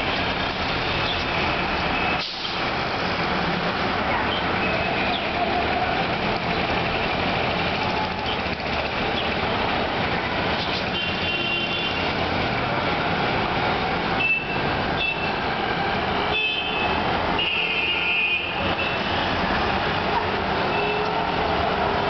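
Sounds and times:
road traffic noise: 0.0s - 22.0s
vehicle horns honking: 10.9s - 12.0s, 14.2s - 15.4s, 16.2s - 19.3s, 20.7s - 21.2s.

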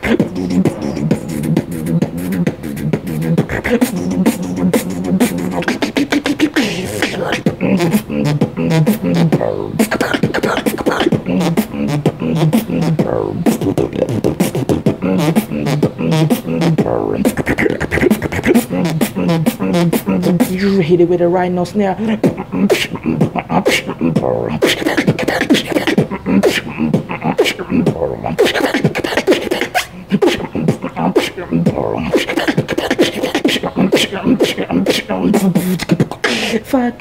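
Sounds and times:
hummed bass line: 0.0s - 5.8s, 6.6s - 10.4s, 11.0s - 20.8s, 22.2s - 24.6s, 30.5s - 32.1s
person beatboxing: 0.0s - 21.0s, 22.0s - 37.0s.

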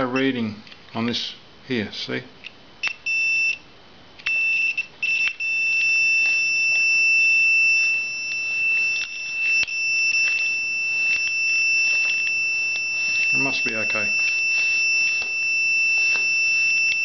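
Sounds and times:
multimeter continuity beep: 0.0s - 0.4s, 2.8s - 17.0s
probe clicks on terminals: 4.2s - 6.9s.

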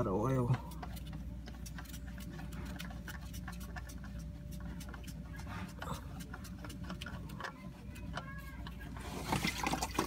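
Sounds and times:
steady low hum: 0.0s - 10.0s
oil dripping into bucket: 8.1s - 10.0s.

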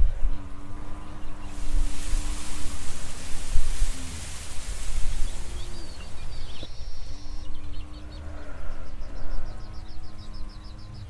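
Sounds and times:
wind rumble on microphone: 0.0s - 6.7s
birds chirping: 0.8s - 6.9s.

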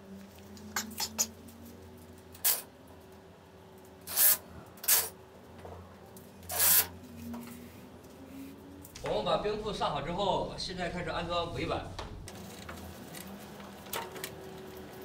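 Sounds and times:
tape measure rasping swishes: 4.1s - 5.1s, 6.5s - 7.0s
tape measure clicks: 6.5s - 6.9s.

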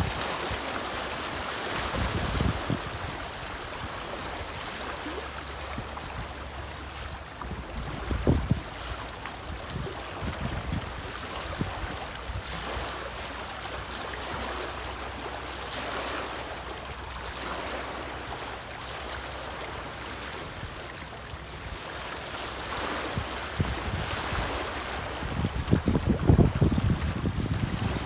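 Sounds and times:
lake water lapping on rocks: 0.0s - 28.0s
wind buffeting microphone: 1.8s - 4.1s, 7.4s - 12.5s, 23.1s - 28.0s.

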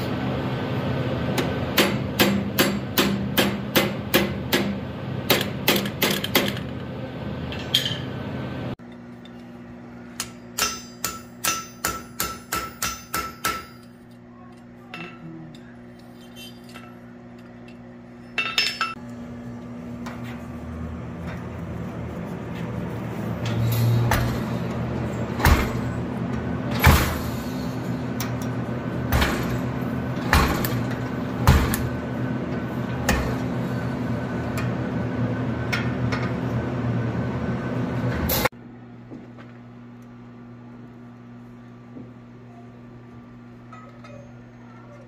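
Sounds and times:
steady machine hum: 0.0s - 45.0s
metal tools clinking: 13.6s - 19.0s.

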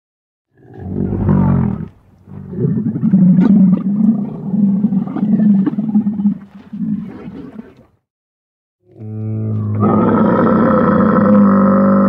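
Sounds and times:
camel groaning: 8.9s - 12.0s.

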